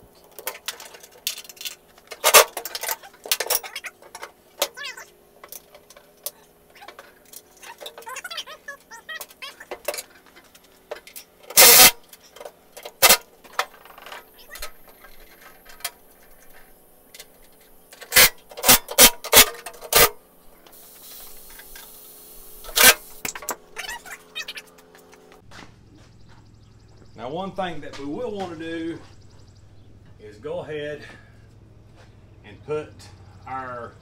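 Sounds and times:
metal clinks of bolts and tools: 0:00.2 - 0:04.8.

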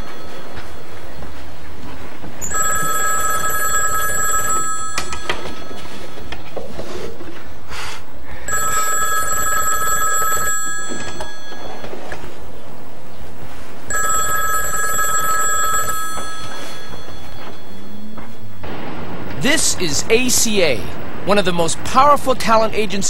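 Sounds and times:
desk telephone ringing: 0:02.4 - 0:06.5, 0:08.5 - 0:12.3, 0:13.9 - 0:18.6.

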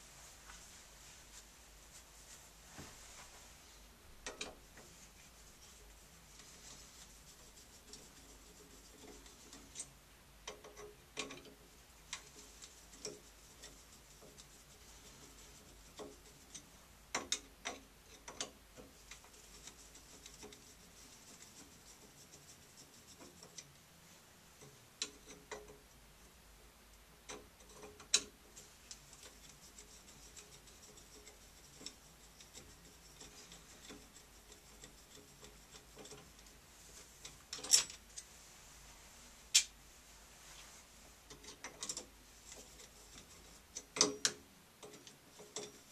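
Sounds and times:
clicks and knocks of handling metal parts: 0:04.2 - 0:05.0, 0:08.9 - 0:14.5, 0:15.2 - 0:20.7, 0:24.6 - 0:26.0, 0:27.2 - 0:38.3, 0:41.2 - 0:45.9.

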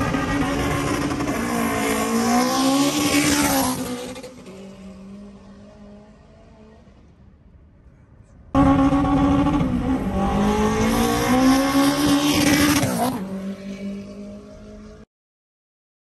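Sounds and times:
car engine under full throttle: 0:00.0 - 0:05.1, 0:08.5 - 0:15.0.

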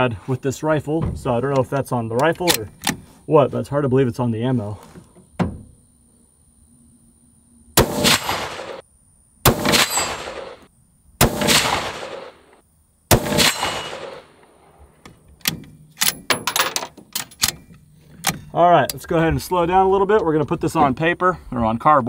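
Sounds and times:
rifle bolt clicks: 0:01.6 - 0:03.0
rifle shots: 0:07.8 - 0:08.8, 0:09.4 - 0:14.6.

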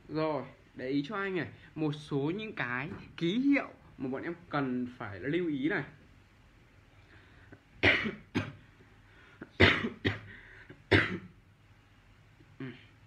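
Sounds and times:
man coughing: 0:07.8 - 0:08.7, 0:09.4 - 0:11.4.

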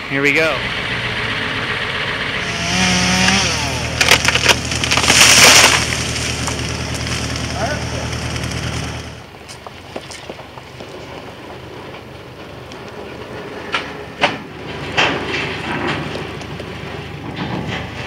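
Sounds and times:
heavy truck engine running: 0:00.0 - 0:18.0
metallic clanks and knocks: 0:13.8 - 0:18.0.

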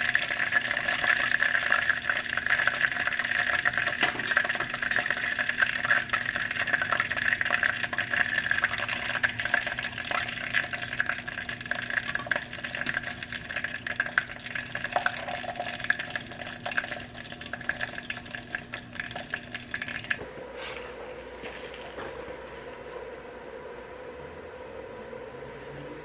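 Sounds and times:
chicken deep-frying in oil: 0:00.0 - 0:20.3
steady hum: 0:00.0 - 0:26.0.

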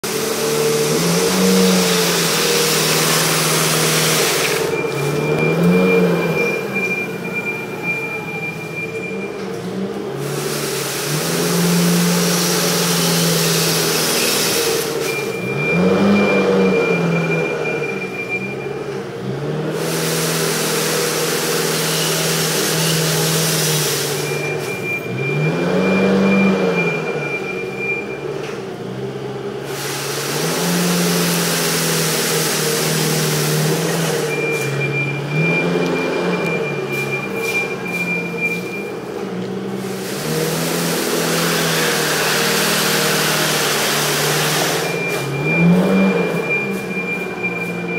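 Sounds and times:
brush sweeper scraping concrete: 0:00.0 - 0:06.8, 0:10.2 - 0:15.3, 0:19.7 - 0:24.5, 0:29.7 - 0:34.8, 0:39.8 - 0:46.9
forklift engine running: 0:00.0 - 0:47.9
high alarm tone: 0:00.8 - 0:09.4, 0:11.9 - 0:18.9, 0:22.8 - 0:28.4, 0:32.8 - 0:39.2, 0:43.2 - 0:47.9.

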